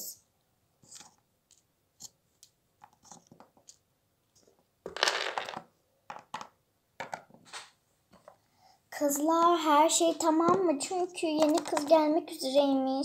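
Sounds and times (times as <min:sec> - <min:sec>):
plastic figurines clicking on table: 0:11.4 - 0:12.0.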